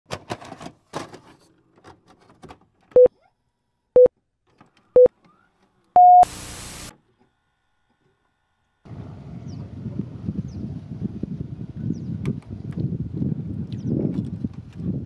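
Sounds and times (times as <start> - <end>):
long high-pitched beep: 6.0 - 6.3
short beeps: 6.0 - 6.3
static hiss: 6.2 - 6.9.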